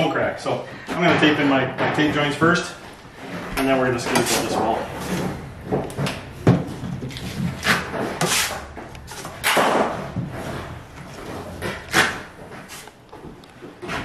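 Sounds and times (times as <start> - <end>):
taping knife scraping compound: 7.6 - 9.6.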